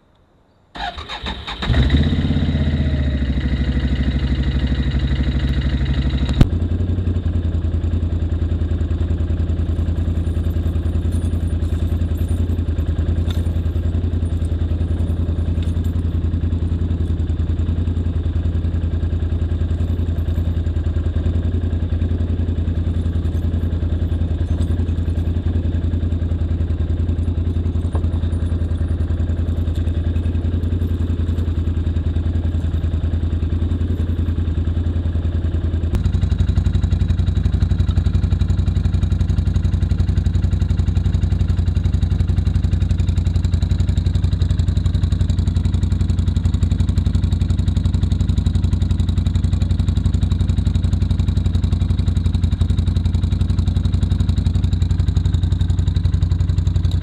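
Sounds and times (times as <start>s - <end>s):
atv engine idling: 0.8s - 57.0s
metallic clinks of tyre chains: 9.7s - 17.2s, 22.7s - 33.0s.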